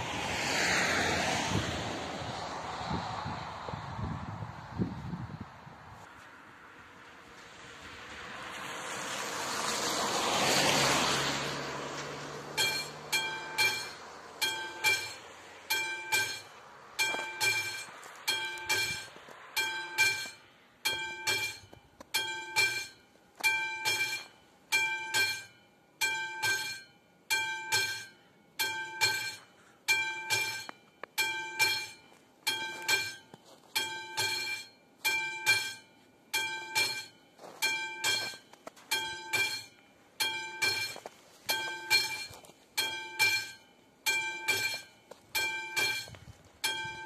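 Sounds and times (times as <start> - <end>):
level-crossing bell ringing: 12.6 - 47.0.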